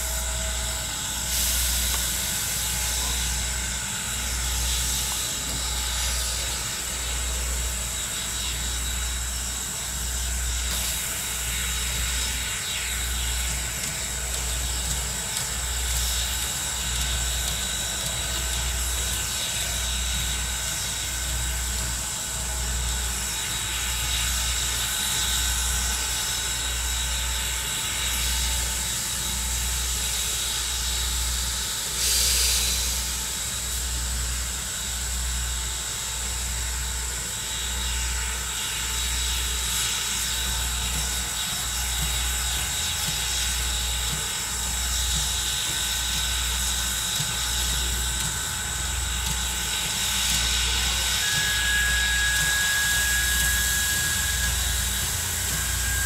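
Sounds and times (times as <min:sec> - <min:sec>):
steam hissing: 0:00.0 - 0:56.0
locomotive low throb: 0:39.2 - 0:56.0.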